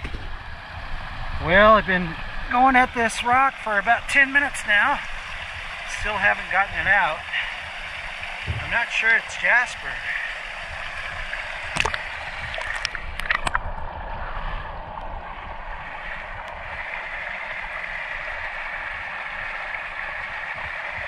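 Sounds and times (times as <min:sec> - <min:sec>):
creek water gurgling: 0:00.0 - 0:21.0
sharp knocks: 0:08.4 - 0:08.8.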